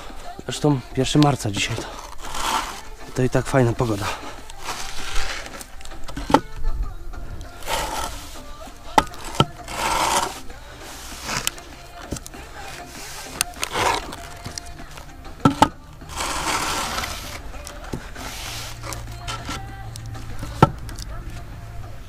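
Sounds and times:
board scraping across damp sand: 1.7 - 5.8, 7.6 - 11.8, 12.6 - 14.3, 16.1 - 19.0.

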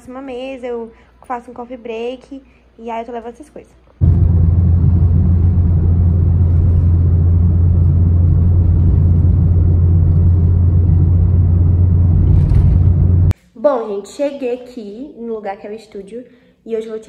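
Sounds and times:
car engine and road rumble: 4.0 - 13.4.

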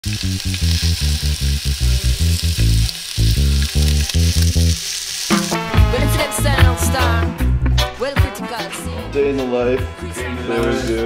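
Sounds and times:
bacon and egg sizzling in pans: 0.0 - 7.1
music with singing voice: 5.4 - 11.0
music with pulsing bass: 5.5 - 10.5.

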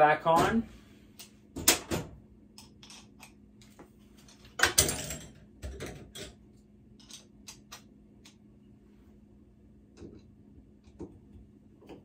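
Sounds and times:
tools clattering on steel sink: 4.2 - 6.4.

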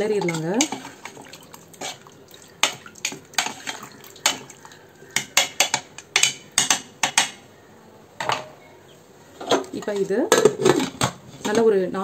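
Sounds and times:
wooden spoon knocking metal pot: 0.2 - 1.3, 2.6 - 7.4.

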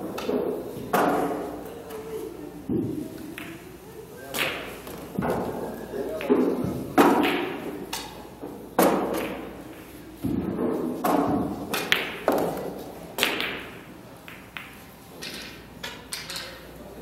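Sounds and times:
pool balls clacking: 0.0 - 1.6, 4.3 - 16.6
cue striking ball: 6.2 - 8.1, 10.2 - 16.3.

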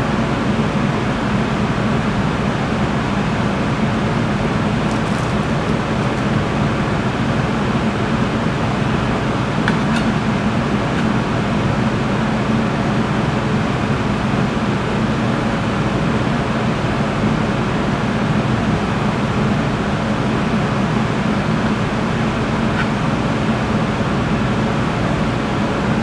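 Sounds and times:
ventilation air rushing: 0.0 - 15.8.

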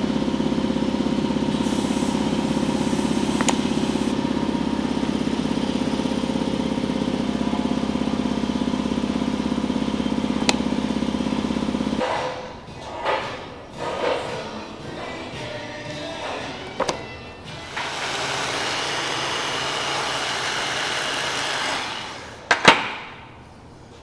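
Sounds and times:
motor droning with pulse: 0.0 - 12.0.

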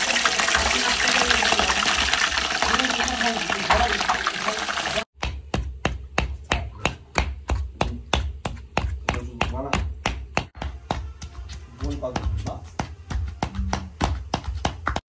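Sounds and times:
chicken sizzling in hot oil: 0.0 - 5.1
pestle pounding in stone mortar: 5.1 - 15.0
knife chopping on wooden board: 5.2 - 15.0.

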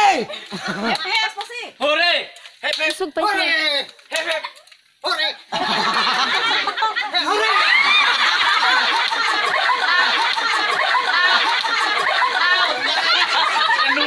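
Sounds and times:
people laughing and chattering: 5.4 - 14.0.

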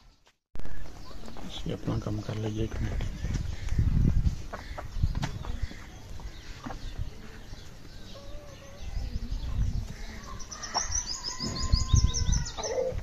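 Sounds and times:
faint chicken calls: 10.0 - 13.0.

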